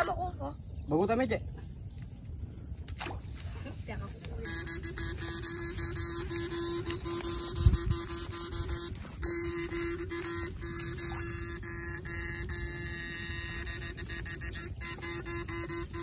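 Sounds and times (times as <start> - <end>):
electrical hum of shocker: 3.0 - 16.0
sharp clicks: 4.3 - 11.6.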